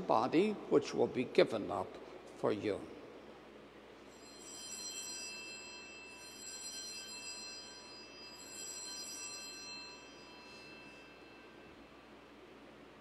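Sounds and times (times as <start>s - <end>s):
altar bells ringing: 4.1s - 12.4s.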